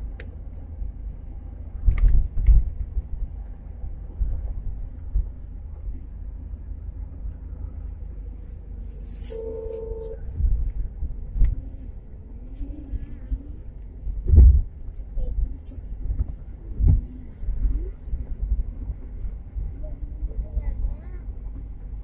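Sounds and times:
vehicle engine and road rumble: 0.0s - 22.0s
wind buffeting microphone: 1.0s - 7.2s, 10.2s - 22.0s
car horn honk: 9.3s - 10.3s.

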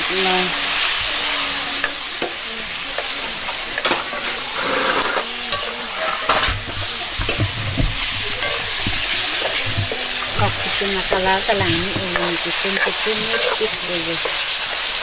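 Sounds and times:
food sizzling in a pan: 0.0s - 15.0s
metal ladle scraping a pan: 1.6s - 14.8s.

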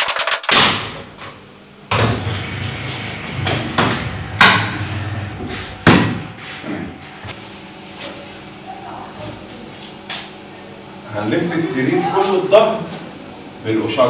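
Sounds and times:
steady low hum: 0.6s - 14.0s
sharp knocks: 1.9s - 6.4s.

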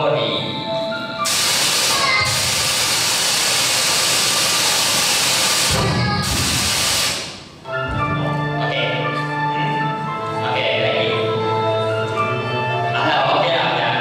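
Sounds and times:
loud steady hiss: 1.2s - 7.6s.

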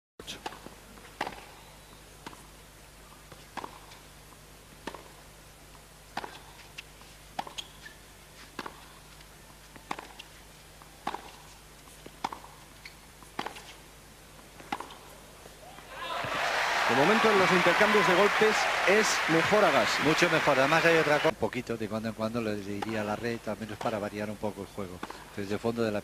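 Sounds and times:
racquets hitting tennis ball: 0.4s - 1.6s, 3.4s - 4.0s, 4.8s - 5.2s, 6.1s - 13.8s, 14.4s - 15.1s, 15.7s - 21.3s, 22.8s - 24.1s, 24.9s - 25.3s.

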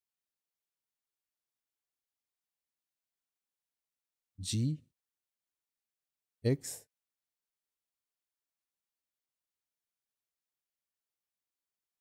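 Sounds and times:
person speaking a word: 4.4s - 4.8s, 6.5s - 6.8s.

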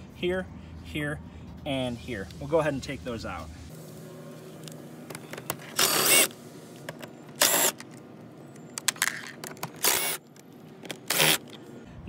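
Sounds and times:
cordless drill running: 5.7s - 6.3s, 7.4s - 7.8s, 9.8s - 10.2s, 11.1s - 11.5s.

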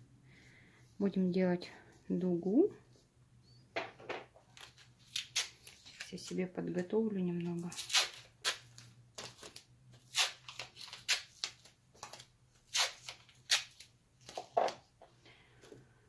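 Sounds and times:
masking tape ripping: 4.6s - 6.1s, 7.6s - 8.8s, 10.0s - 13.9s.

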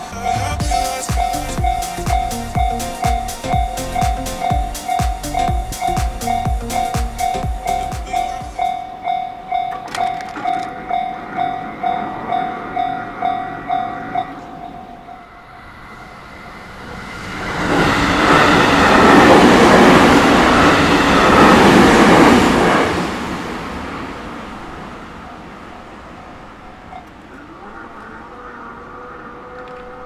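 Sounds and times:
level-crossing warning bell: 0.0s - 16.6s, 26.2s - 27.2s
train rushing past: 0.0s - 30.0s.

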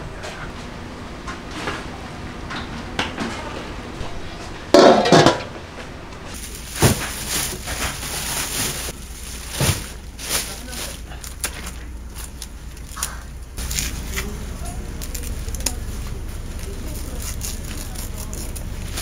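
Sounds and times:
handling noises: 0.2s - 19.0s
kitchen clatter: 1.5s - 5.7s, 6.3s - 12.3s
metal lid clanking on pot: 4.8s - 5.5s.

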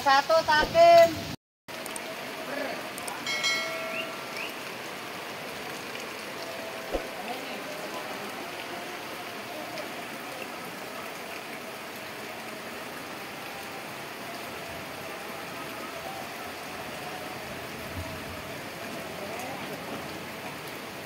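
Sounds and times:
heavy rain on pond water: 0.1s - 21.0s.

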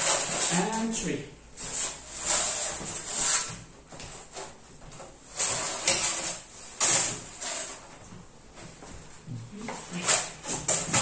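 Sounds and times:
styrofoam scraping on wood: 0.0s - 1.0s, 1.6s - 3.7s, 5.3s - 7.9s.

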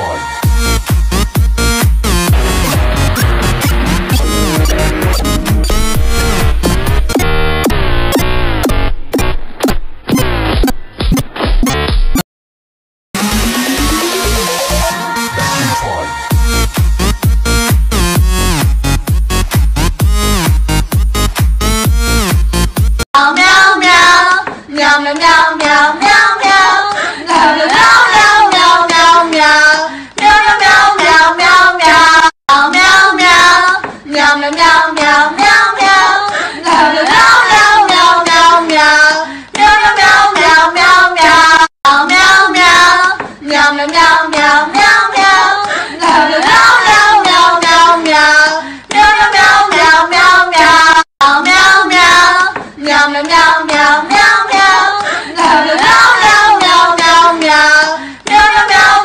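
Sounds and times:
light clapping beat: 16.8s - 22.5s
high childlike voice singing: 23.2s - 59.0s.

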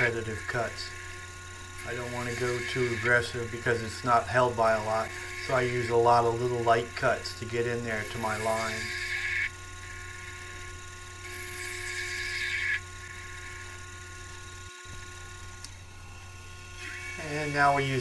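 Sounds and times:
lathe cutting hiss: 0.0s - 13.8s, 15.9s - 18.0s
lathe motor hum: 0.0s - 18.0s.

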